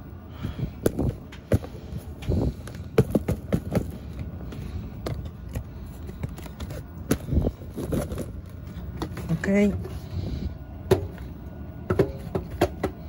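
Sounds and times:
cardboard box scraping and knocking: 0:01.0 - 0:09.4.

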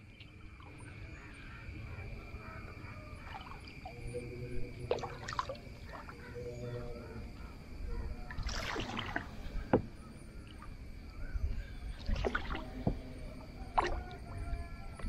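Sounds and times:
paddle water swishing: 0:08.3 - 0:10.8, 0:11.6 - 0:15.0.

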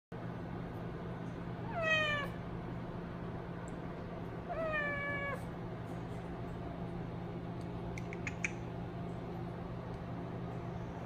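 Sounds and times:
kitten meowing: 0:01.7 - 0:02.4, 0:04.5 - 0:05.4.

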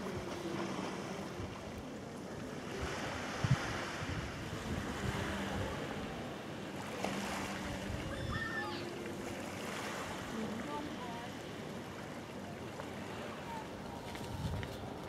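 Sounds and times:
sea surf washing: 0:00.0 - 0:15.0
wind gusting on microphone: 0:02.8 - 0:06.3, 0:13.8 - 0:15.0.

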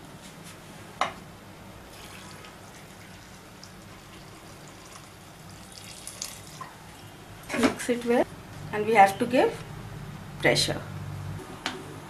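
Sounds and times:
water trickling into a pot: 0:01.9 - 0:07.1.

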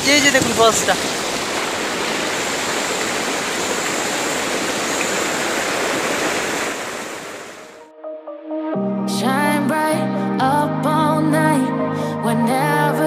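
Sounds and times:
waterfall rushing: 0:00.0 - 0:07.8
music: 0:07.8 - 0:13.0.

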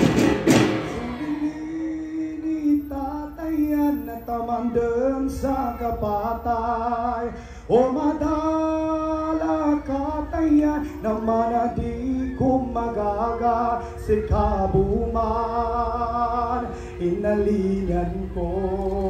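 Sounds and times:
voices singing a melody: 0:00.0 - 0:19.0.

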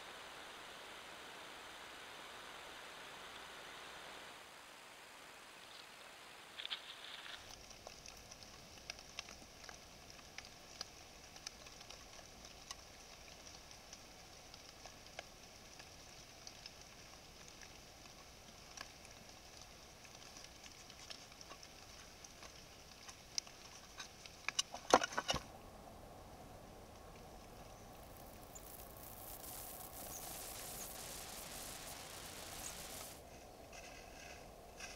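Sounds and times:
microphone hiss: 0:00.0 - 0:34.9
animal rustling in dry leaves: 0:06.6 - 0:07.7.

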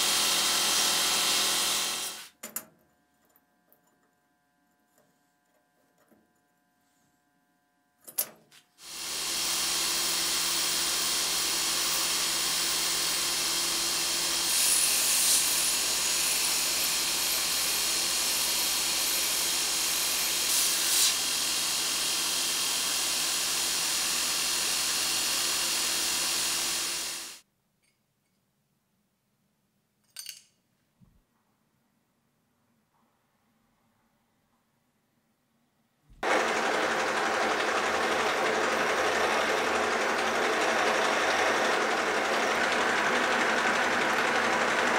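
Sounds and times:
belt grinder grinding steel: 0:00.0 - 0:02.3, 0:08.8 - 0:27.4, 0:36.2 - 0:44.9.

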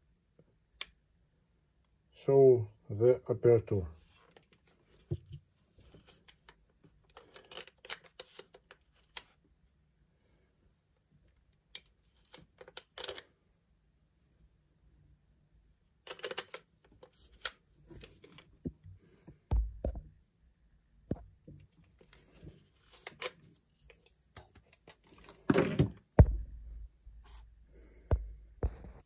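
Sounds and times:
low thumps: 0:19.5 - 0:20.2, 0:26.1 - 0:28.9.

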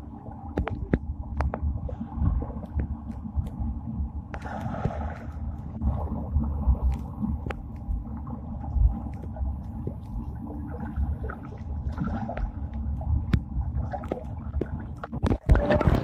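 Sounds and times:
underwater rumble: 0:00.0 - 0:16.0
bubbles clicking underwater: 0:00.5 - 0:01.6, 0:08.6 - 0:16.0.

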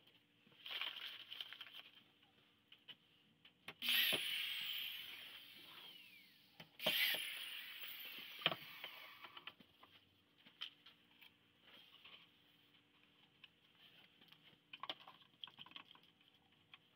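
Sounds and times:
electric drill whine: 0:03.8 - 0:09.4.

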